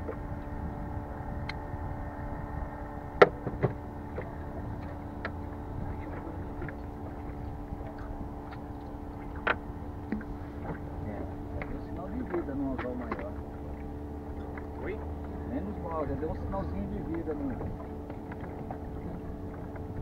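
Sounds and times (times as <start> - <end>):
engine hum: 0.0 - 20.0
water noise: 0.0 - 20.0
wind: 0.0 - 20.0
knocks on aluminium boat: 3.2 - 4.3.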